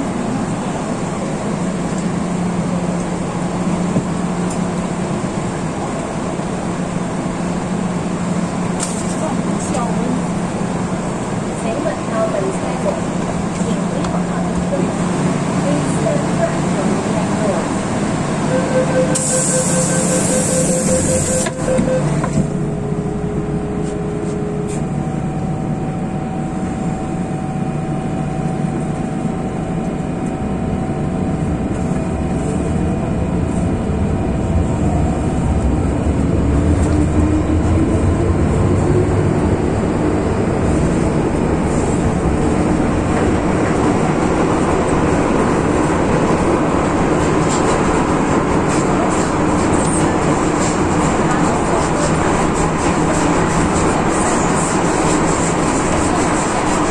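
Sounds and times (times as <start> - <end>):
wheels rumbling on rail: 0.0 - 56.9
warning beeps: 18.5 - 22.3
traction motors whining: 18.5 - 22.6.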